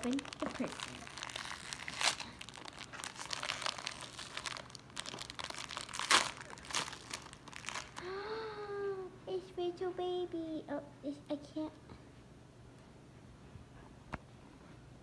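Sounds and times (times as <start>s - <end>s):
foil wrapping crinkling: 0.0s - 8.1s.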